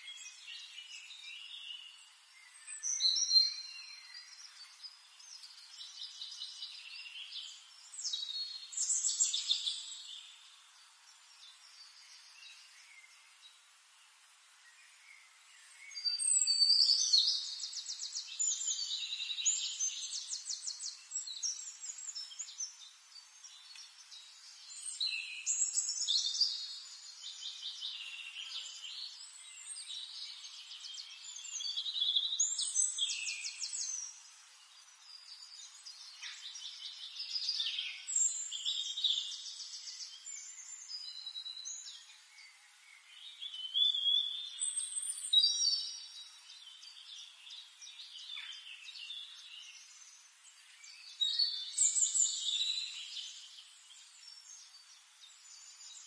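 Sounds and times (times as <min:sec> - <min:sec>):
songbird trilling and chirping: 0:00.0 - 0:13.4, 0:14.6 - 0:56.0.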